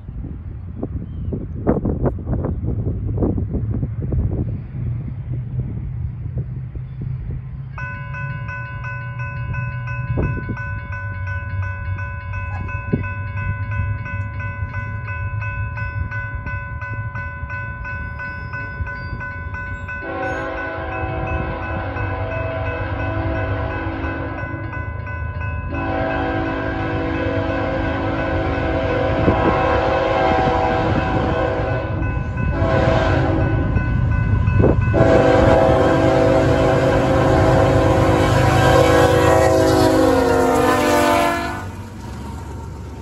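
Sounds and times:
train engine rumble: 0:00.0 - 0:43.0
locomotive air horn chord: 0:20.0 - 0:24.7, 0:25.7 - 0:33.8, 0:34.9 - 0:41.8.

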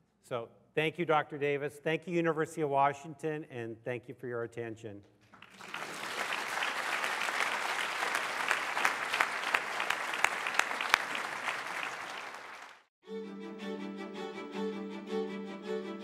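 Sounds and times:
audience applauding: 0:05.3 - 0:12.9.

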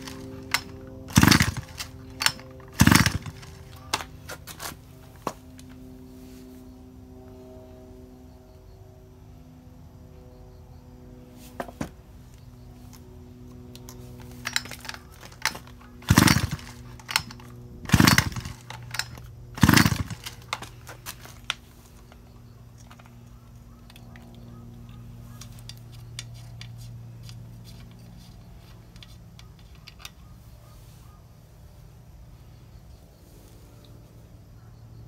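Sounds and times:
chainsaw recoil starter whirr: 0:00.0 - 0:04.2, 0:13.7 - 0:21.8.

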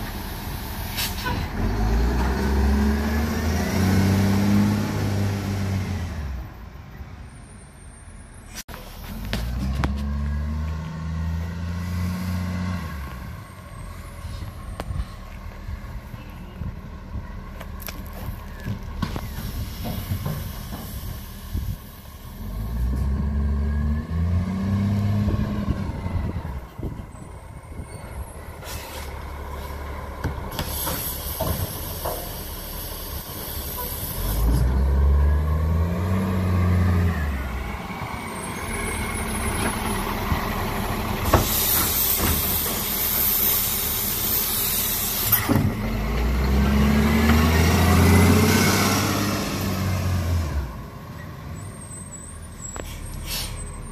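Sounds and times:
truck diesel engine revving: 0:00.0 - 0:06.6, 0:08.9 - 0:53.9
air hissing: 0:19.2 - 0:22.1, 0:30.5 - 0:34.3, 0:41.2 - 0:45.5.

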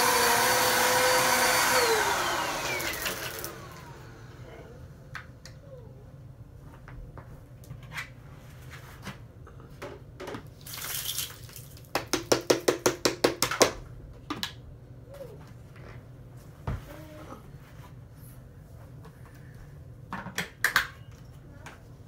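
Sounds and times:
debris pouring into plastic tub: 0:10.6 - 0:11.8.

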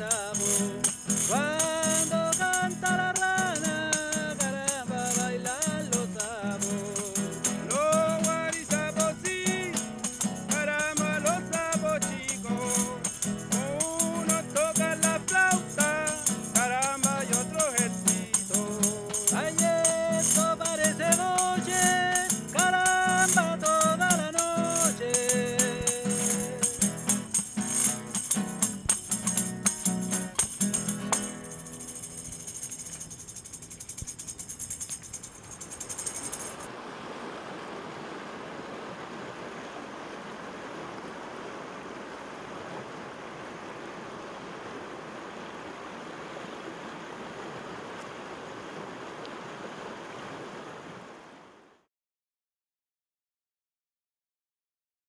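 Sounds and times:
men singing: 0:00.0 - 0:27.1
strummed acoustic guitar: 0:00.0 - 0:35.0
hand tambourine jingling: 0:00.0 - 0:36.7.

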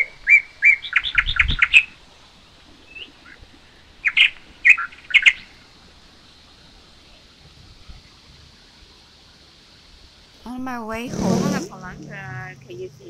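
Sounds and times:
birds chirping: 0:00.0 - 0:06.5.

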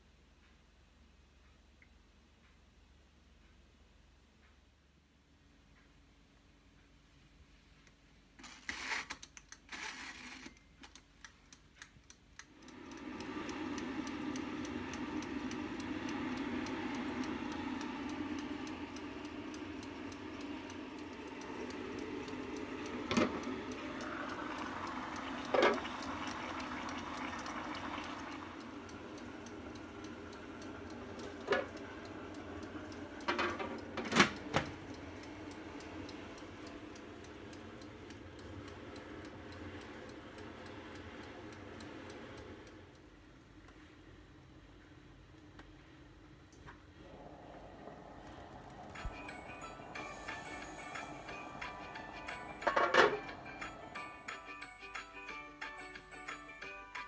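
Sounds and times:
fine regular ticking: 0:10.2 - 0:44.0, 0:47.0 - 0:57.0
steamer hissing: 0:12.6 - 0:42.6, 0:47.0 - 0:55.5.

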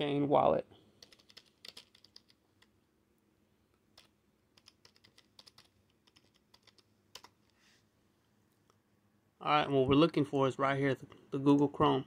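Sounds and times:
computer keyboard typing: 0:01.0 - 0:02.7, 0:03.9 - 0:07.5.

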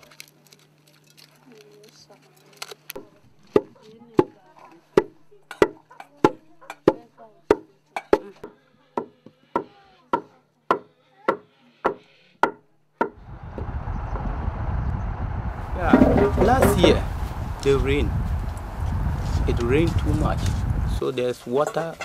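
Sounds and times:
steady rushing noise: 0:13.2 - 0:21.0
pestle pounding in wooden mortar: 0:15.8 - 0:17.0.

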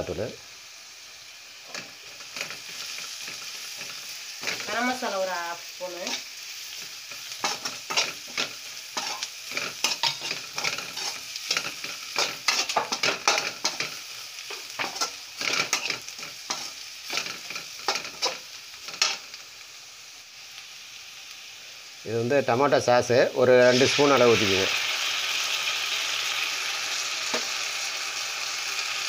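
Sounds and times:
vegetables sizzling in oil: 0:00.0 - 0:29.0
metal ladle scraping pan: 0:07.4 - 0:19.2.

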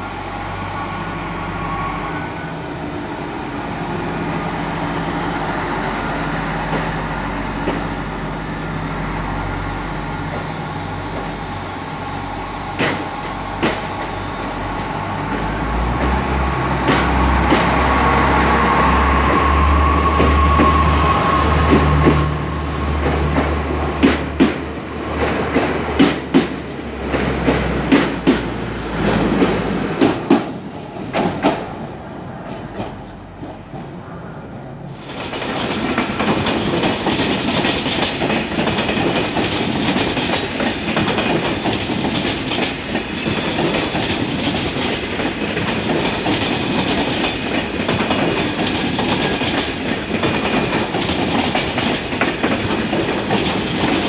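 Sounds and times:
diesel train engines rumbling: 0:00.0 - 0:54.0
train wheels clacking over rail joints: 0:06.6 - 0:08.1, 0:12.7 - 0:34.0, 0:35.0 - 0:54.0.

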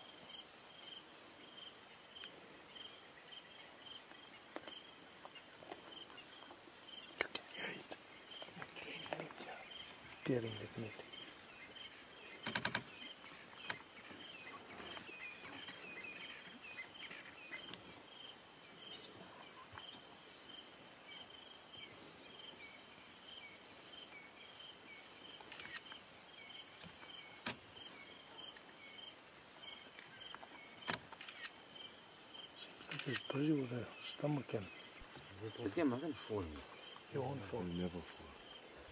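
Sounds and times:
crickets and night insects: 0:00.0 - 0:38.9
sharp clicks: 0:12.4 - 0:12.9.

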